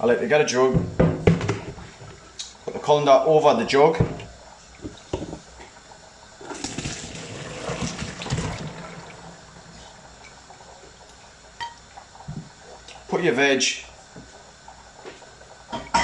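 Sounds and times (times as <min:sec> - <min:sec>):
water pouring through colander: 0:06.4 - 0:11.3.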